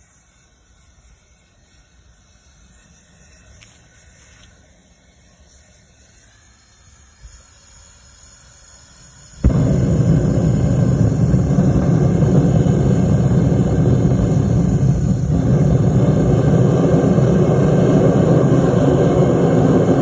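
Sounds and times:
gas flame hissing: 6.7s - 20.0s
burner roaring: 9.4s - 20.0s.

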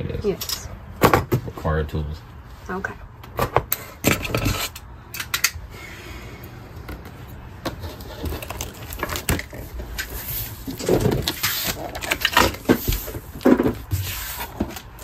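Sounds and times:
cardboard scraping and knocking: 6.8s - 15.0s.

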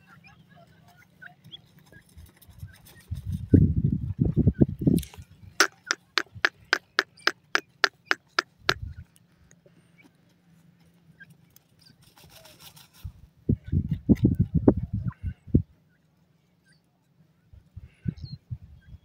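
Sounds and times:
wings fluttering in dry soil: 0.0s - 15.5s
sharp ticks: 5.6s - 8.8s.

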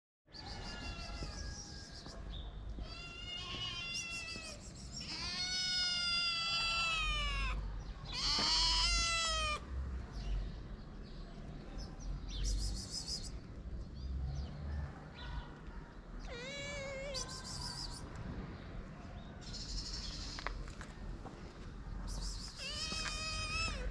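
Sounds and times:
kitten meowing: 0.6s - 2.0s, 2.8s - 9.6s, 16.2s - 18.0s, 22.5s - 23.9s.

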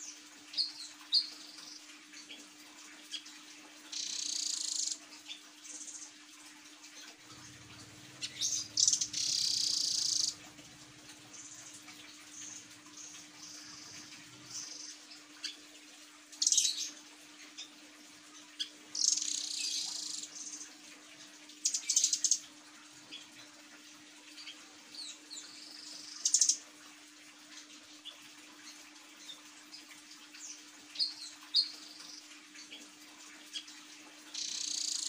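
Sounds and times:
bird high rapid trills: 7.4s - 15.0s.

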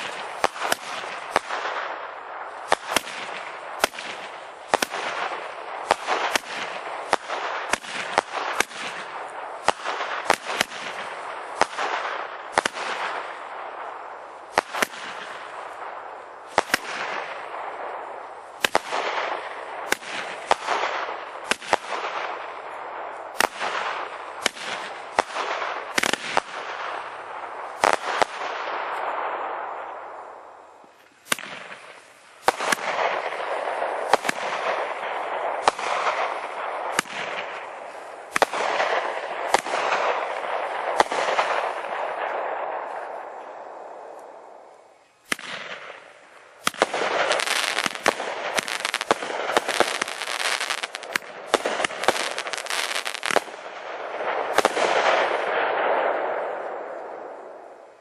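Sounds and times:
fireworks bangs: 0.0s - 58.0s
fireworks hiss: 14.1s - 29.2s, 30.2s - 53.7s.

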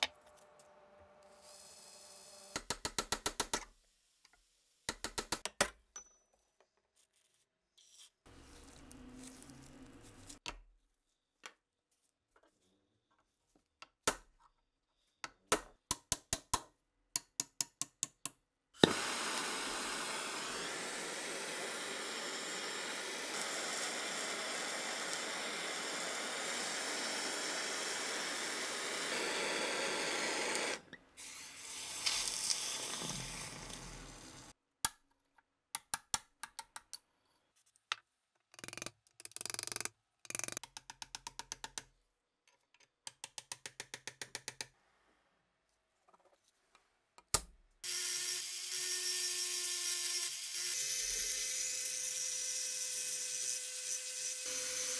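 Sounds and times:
sharp metal clicks and taps: 15.5s - 18.4s, 35.7s - 37.0s, 38.5s - 41.9s, 42.8s - 44.8s
aerosol spray can hissing: 18.8s - 34.4s.

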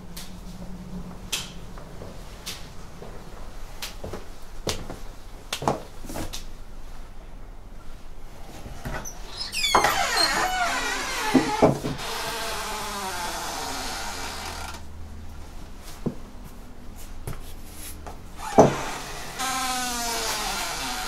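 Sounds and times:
wooden wardrobe creaking: 8.8s - 14.8s, 18.4s - 21.0s.

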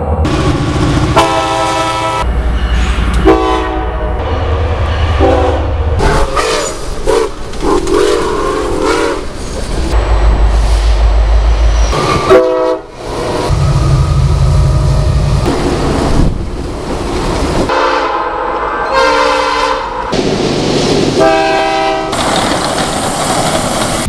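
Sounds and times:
passing locomotive rumble: 0.0s - 24.0s
diesel locomotive horn chords: 1.1s - 2.4s, 3.1s - 7.3s, 7.9s - 9.2s, 12.2s - 12.9s, 17.7s - 20.1s, 21.2s - 22.2s
steam locomotive whistle: 1.2s - 2.3s, 3.2s - 4.3s, 5.1s - 7.3s, 7.9s - 9.2s, 11.9s - 12.9s, 17.7s - 20.0s, 21.2s - 22.2s.

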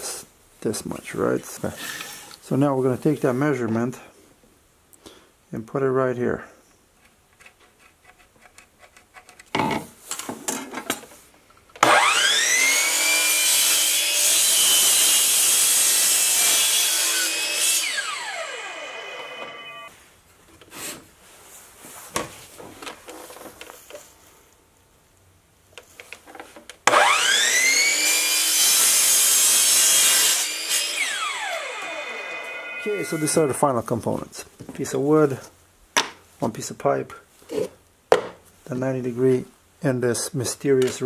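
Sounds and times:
saw cutting plastic pipe: 11.8s - 19.7s, 26.9s - 33.5s
miter saw whining: 11.8s - 19.9s, 26.9s - 33.5s.

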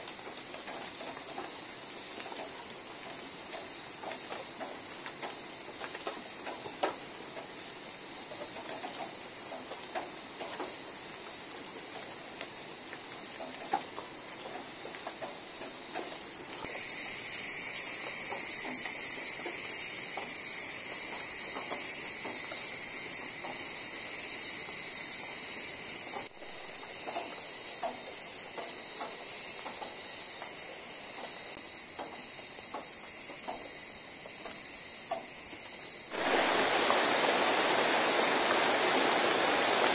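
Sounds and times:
steady high-pitched hiss: 0.0s - 39.9s
wood fire crackling: 36.0s - 39.9s.

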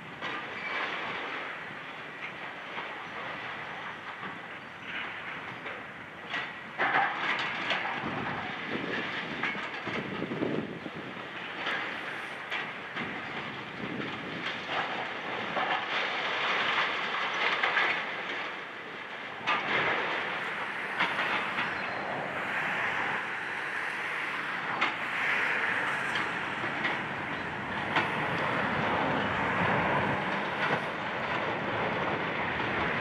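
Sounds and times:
clatter of crumbling concrete: 0.2s - 21.9s.

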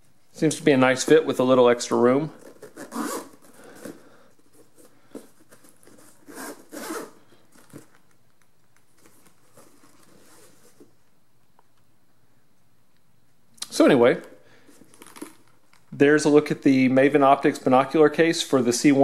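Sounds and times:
zipper zipping: 2.4s - 3.5s, 6.1s - 7.2s.

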